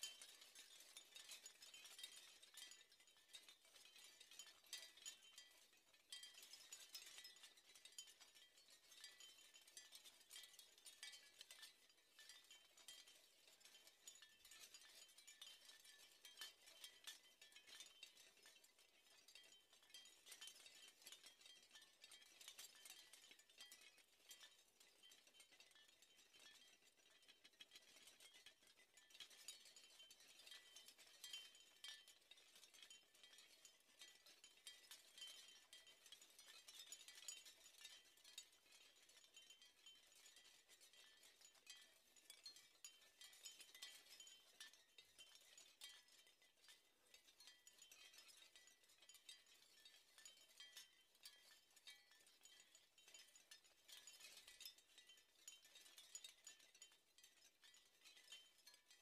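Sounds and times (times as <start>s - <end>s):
seashell wind chime clinking: 30.6s - 32.1s, 34.5s - 40.4s, 47.4s - 59.0s.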